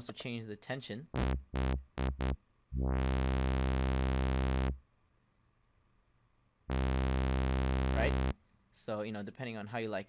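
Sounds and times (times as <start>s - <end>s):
low synth bass note: 1.2s - 4.8s, 6.7s - 8.3s.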